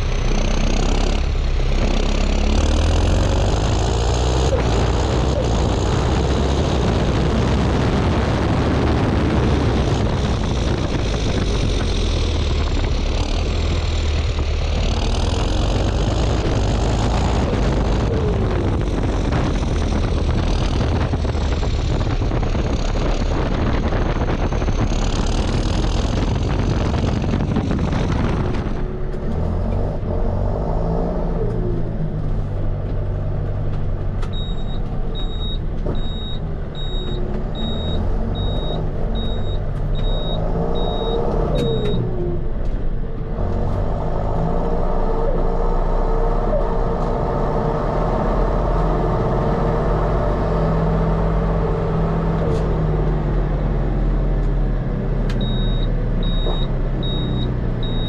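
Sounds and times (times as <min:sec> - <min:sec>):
tractor diesel engine running: 0:00.0 - 0:30.8, 0:31.4 - 0:58.0
heavy rushing noise: 0:00.0 - 0:31.2
high cab beeps: 0:55.4 - 0:58.0.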